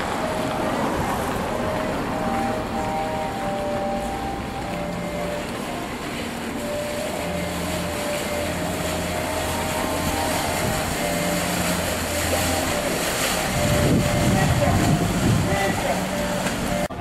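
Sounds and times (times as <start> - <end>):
motorboat engine droning: 0.0 - 17.0
water wash: 0.0 - 17.0
wind noise: 10.0 - 17.0.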